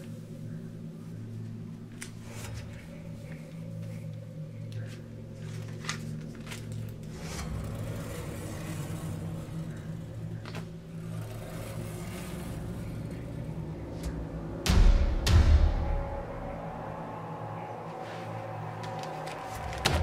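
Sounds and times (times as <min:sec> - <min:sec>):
steady low hum: 0:00.0 - 0:20.0
paper pages rustling: 0:04.6 - 0:07.5, 0:18.0 - 0:20.0.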